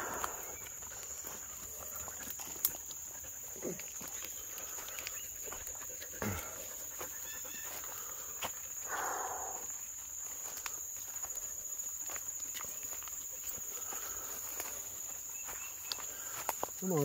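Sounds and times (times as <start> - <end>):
footsteps crunching through leaves: 0.0 - 17.0
insects droning: 0.0 - 17.0
twigs crackling: 13.8 - 17.0.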